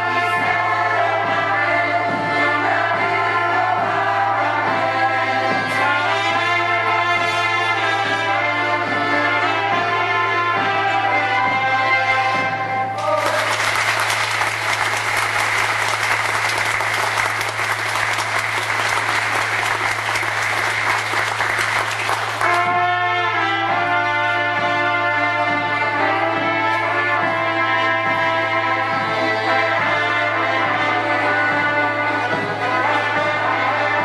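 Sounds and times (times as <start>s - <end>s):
folk band with trumpets and accordion: 0.0s - 34.0s
audience applauding: 13.0s - 22.8s.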